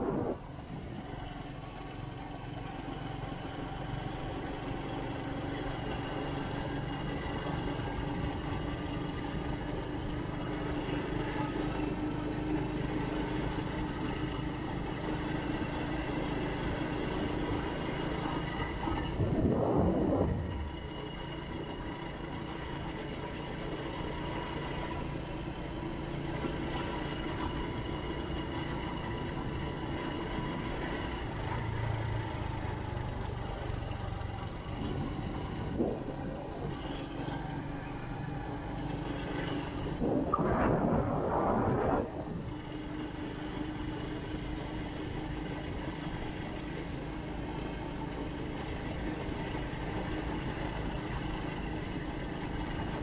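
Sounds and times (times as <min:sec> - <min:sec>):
loud rushing noise: 0:00.0 - 0:00.6, 0:19.1 - 0:20.9, 0:39.8 - 0:42.5
vehicle engine running: 0:00.0 - 0:53.0.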